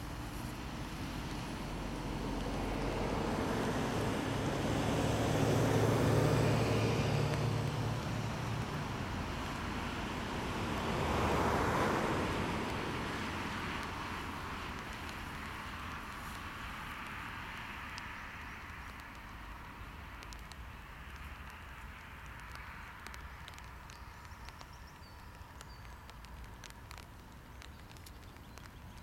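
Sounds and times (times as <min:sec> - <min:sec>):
bus engine drone: 0:00.0 - 0:17.0
car tyre noise passing: 0:00.0 - 0:29.0.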